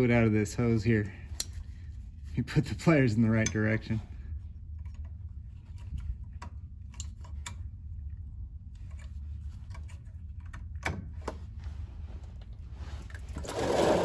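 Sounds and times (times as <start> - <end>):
steady low hum: 0.0 - 14.0
metallic clicks of pliers: 1.4 - 1.6
fluid rushing from hose: 13.4 - 14.0.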